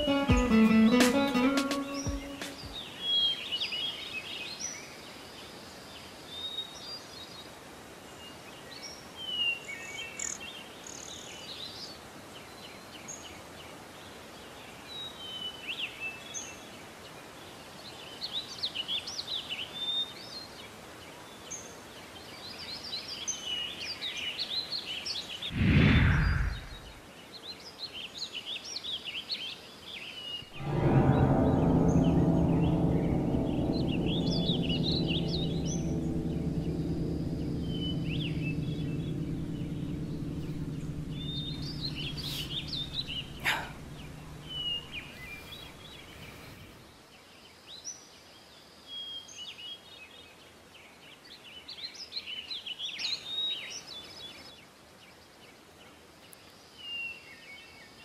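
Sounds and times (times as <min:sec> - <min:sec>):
outdoor background noise: 0:00.0 - 0:49.8
loud rush of noise: 0:25.5 - 0:27.0, 0:30.6 - 0:46.4.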